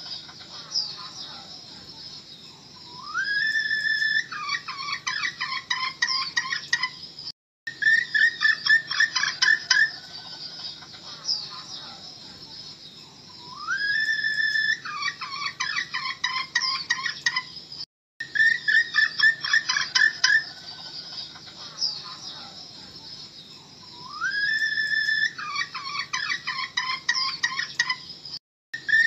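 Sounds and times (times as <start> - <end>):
hen whistling and clucking: 2.8 - 7.0, 7.7 - 11.4, 13.3 - 17.5, 18.2 - 22.3, 23.8 - 28.1, 28.8 - 29.0.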